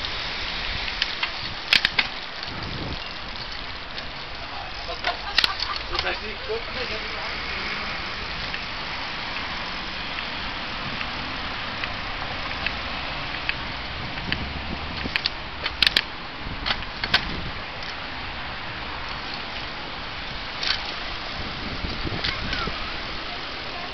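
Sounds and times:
wind and road noise: 0:00.0 - 0:23.9
sharp clicks and rattles: 0:01.0 - 0:07.0, 0:12.6 - 0:18.0, 0:20.6 - 0:21.0.

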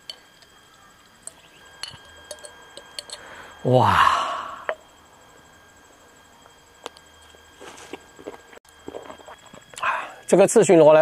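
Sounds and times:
person chewing crunchy food: 0:07.9 - 0:09.8.

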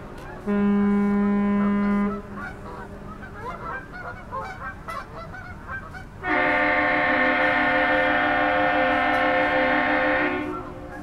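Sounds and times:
multi-tone air horn: 0:00.4 - 0:02.4, 0:06.2 - 0:11.0
deep ship's horn: 0:00.4 - 0:03.7, 0:06.2 - 0:11.0.

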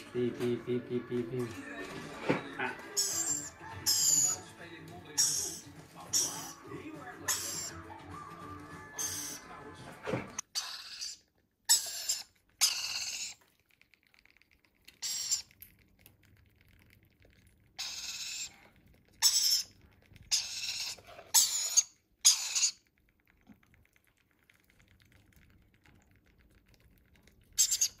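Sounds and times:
parrot chicks begging calls: 0:02.8 - 0:04.5, 0:05.1 - 0:09.6, 0:20.3 - 0:22.8.

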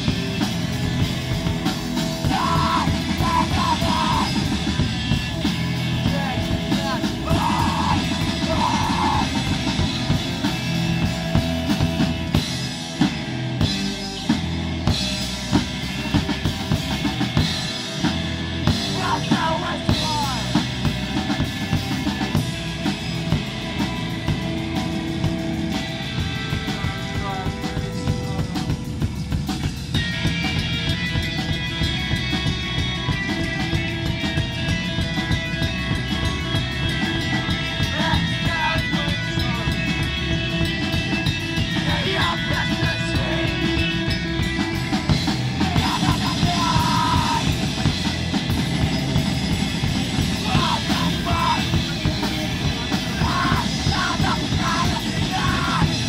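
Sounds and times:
rock band playing live: 0:00.0 - 0:56.0
vocalist yelling into microphone: 0:02.2 - 0:04.4, 0:06.1 - 0:09.4, 0:45.7 - 0:47.6, 0:50.4 - 0:51.9, 0:53.0 - 0:56.0.

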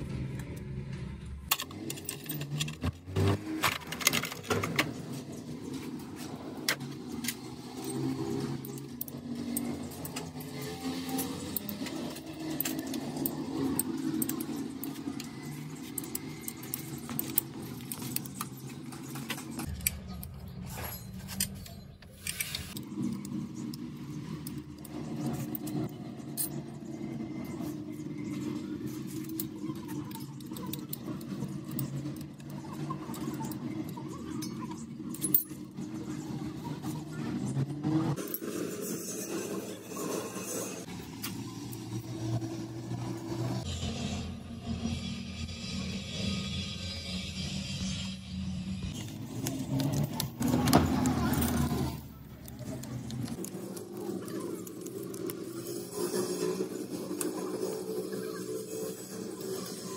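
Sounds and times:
metal tools clinking and rattling: 0:01.5 - 0:37.1, 0:48.9 - 0:59.9.

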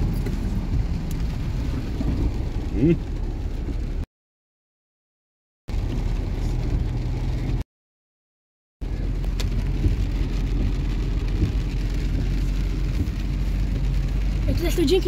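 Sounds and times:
car engine and tyre drone: 0:00.0 - 0:04.0, 0:05.7 - 0:07.6, 0:08.8 - 0:15.0
rain hiss: 0:08.8 - 0:15.0.

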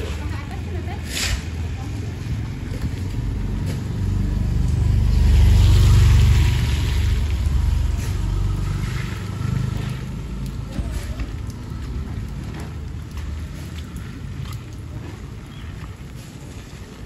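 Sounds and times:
light raindrop ticks: 0:07.0 - 0:17.0.

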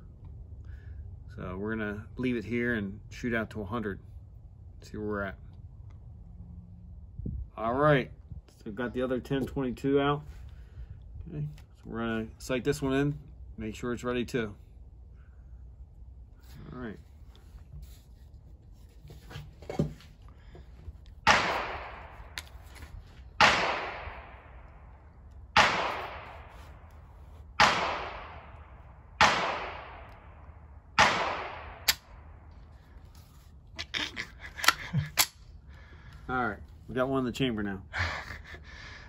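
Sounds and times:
rifle shots with echo: 0:21.2 - 0:22.4, 0:23.4 - 0:26.6, 0:27.6 - 0:32.5.

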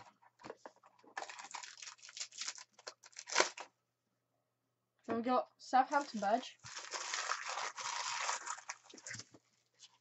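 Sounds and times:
foil packet tearing and crinkling: 0:01.2 - 0:03.7, 0:06.0 - 0:09.3.

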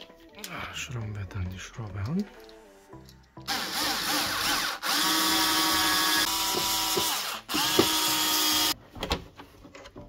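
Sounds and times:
cordless drill motor spinning up: 0:03.5 - 0:08.8.

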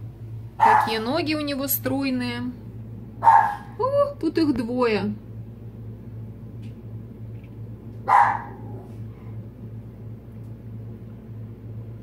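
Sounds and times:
steady low hum: 0:00.0 - 0:12.0
dog barking: 0:00.6 - 0:01.0, 0:03.2 - 0:03.8, 0:08.0 - 0:08.9.

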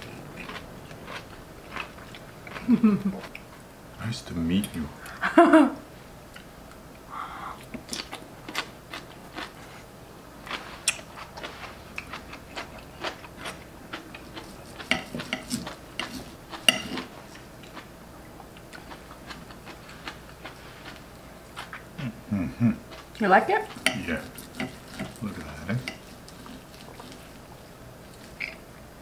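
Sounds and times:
people chewing: 0:00.0 - 0:03.6, 0:06.3 - 0:28.9
cutlery scraping plates: 0:14.7 - 0:17.1, 0:23.7 - 0:25.2.

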